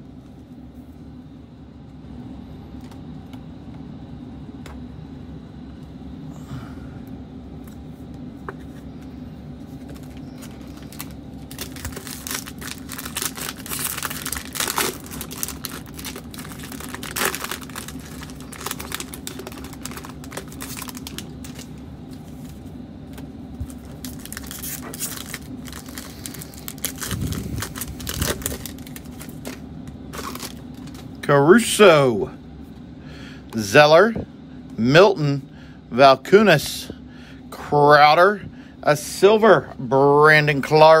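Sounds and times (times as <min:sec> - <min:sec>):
low hum: 0:00.0 - 0:36.2
wrappers tearing and crinkling: 0:09.8 - 0:21.8, 0:23.6 - 0:31.1.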